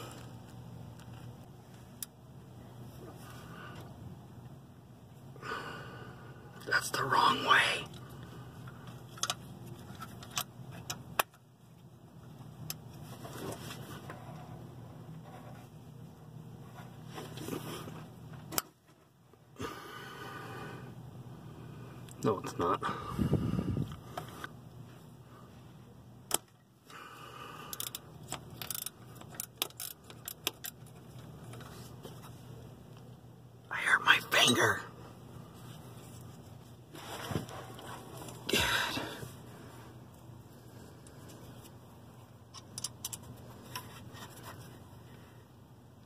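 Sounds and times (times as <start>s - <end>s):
faint low hum: 0.0s - 46.0s.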